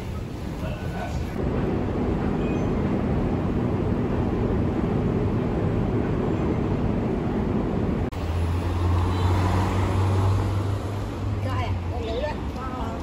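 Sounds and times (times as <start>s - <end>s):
metro station hum: 0.0s - 9.2s
street traffic: 0.0s - 13.0s
minivan engine passing: 3.4s - 13.0s.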